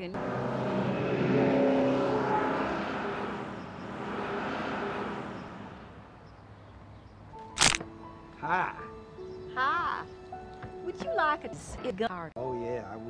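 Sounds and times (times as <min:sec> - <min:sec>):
bus engine driving past: 0:00.0 - 0:07.4.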